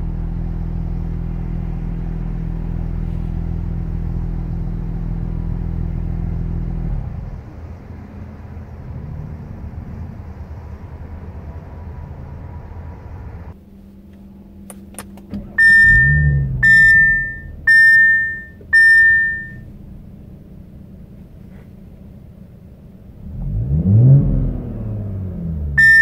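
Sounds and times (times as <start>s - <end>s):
car engine idling: 0.0s - 26.0s
ringing car warning chimes: 15.4s - 19.7s, 25.8s - 26.0s.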